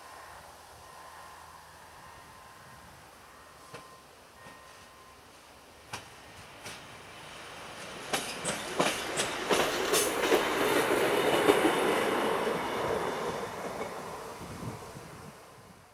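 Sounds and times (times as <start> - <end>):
railbus running past: 0.0 - 15.9
wheels clicking over rail joints: 5.8 - 7.0, 7.6 - 14.4.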